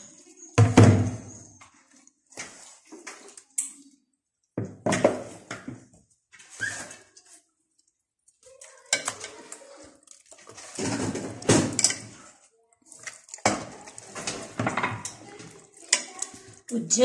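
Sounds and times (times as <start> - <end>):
wet squelching of meat: 6.3 - 16.7.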